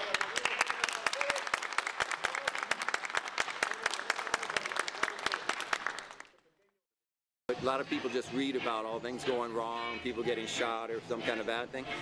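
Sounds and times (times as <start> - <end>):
audience clapping: 0.0 - 6.6.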